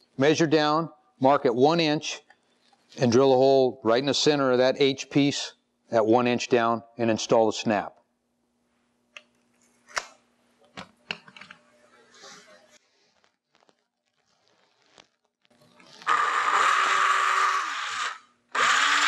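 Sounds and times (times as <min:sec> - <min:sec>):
cordless drill drilling: 0:16.0 - 0:19.0.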